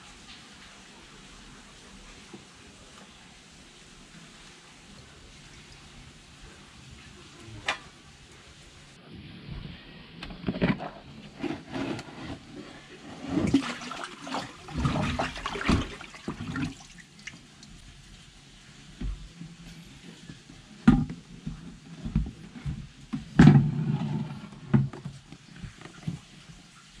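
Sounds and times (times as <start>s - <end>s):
water splashing in plastic tub: 10.4s - 17.8s.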